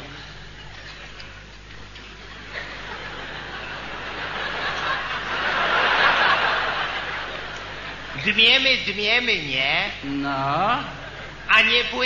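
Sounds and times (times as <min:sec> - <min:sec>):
audience laughing: 0:00.0 - 0:08.4, 0:10.9 - 0:11.8.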